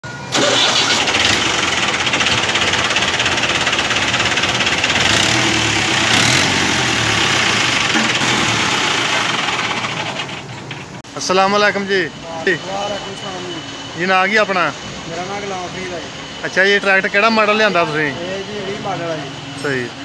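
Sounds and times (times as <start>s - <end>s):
tractor diesel engine idling: 0.1s - 11.2s.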